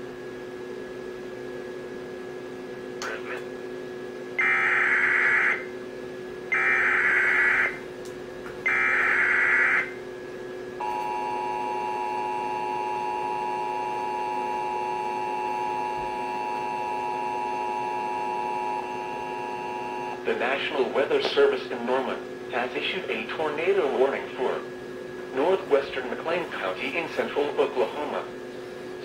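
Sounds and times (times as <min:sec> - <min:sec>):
two-tone attention signal: 0:06.5 - 0:07.8.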